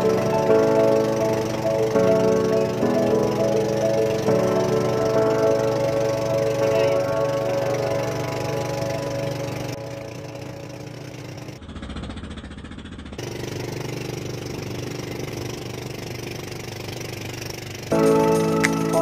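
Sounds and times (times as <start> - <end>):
background music: 0.0 - 11.3, 17.9 - 19.0
boat engine running: 0.0 - 19.0.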